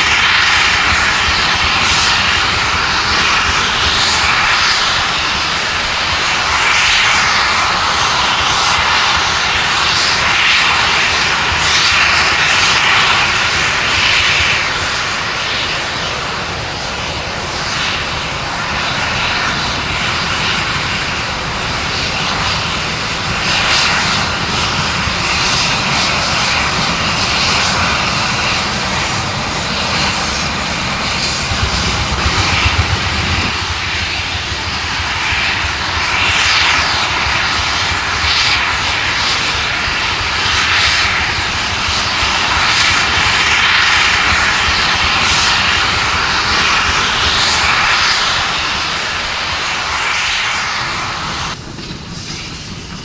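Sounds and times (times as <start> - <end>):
train rumbling on rails: 0.0 - 53.0
steam locomotive chuffing: 17.5 - 53.0.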